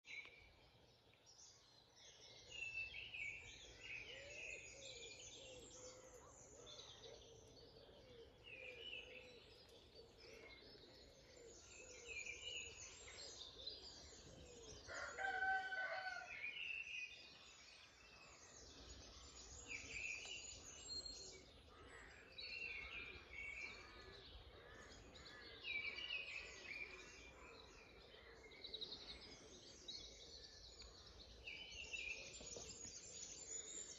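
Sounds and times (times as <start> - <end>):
songbirds singing: 0.0 - 33.9
rooster crowing: 14.9 - 16.4.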